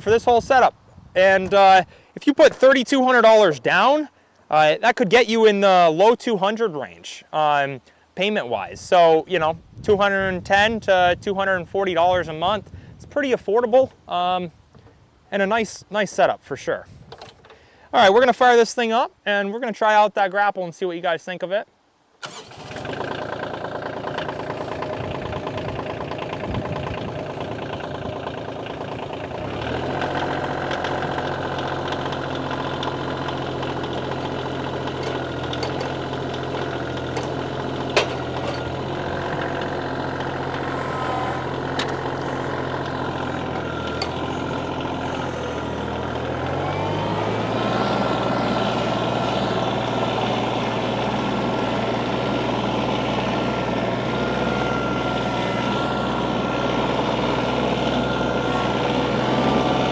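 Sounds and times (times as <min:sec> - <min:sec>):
tractor diesel engine idling: 0:22.2 - 0:59.9.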